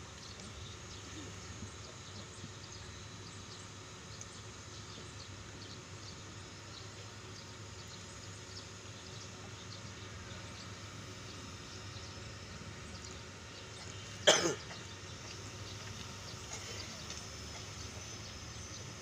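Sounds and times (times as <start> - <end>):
person coughing: 14.2 - 14.6.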